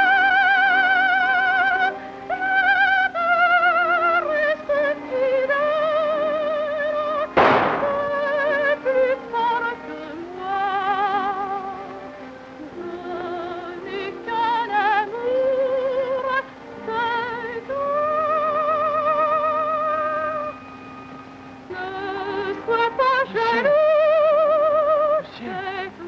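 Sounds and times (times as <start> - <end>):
operatic solo melody with vibrato: 3.0 - 12.3.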